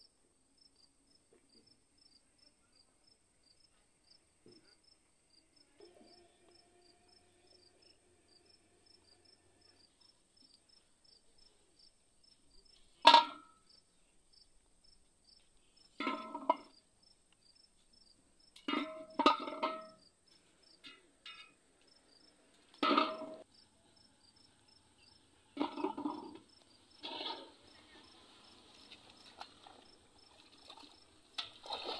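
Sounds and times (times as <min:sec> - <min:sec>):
insect chirping: 0:00.0 - 0:31.9
plastic bottles clunking on metal pot: 0:13.0 - 0:13.6, 0:16.0 - 0:16.7, 0:18.6 - 0:20.0, 0:22.8 - 0:23.4, 0:25.6 - 0:27.6.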